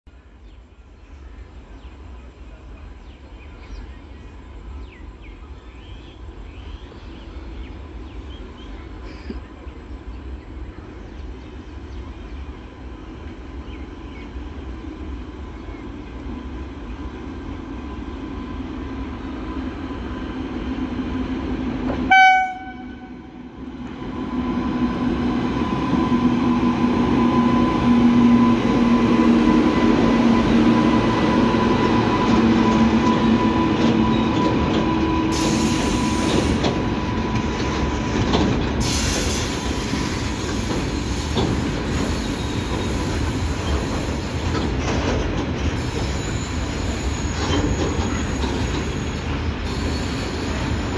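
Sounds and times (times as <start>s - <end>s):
electric locomotive rumbling: 0.3s - 50.9s
wagons rumbling along rails: 1.0s - 50.9s
locomotive horn blast: 22.1s - 23.5s.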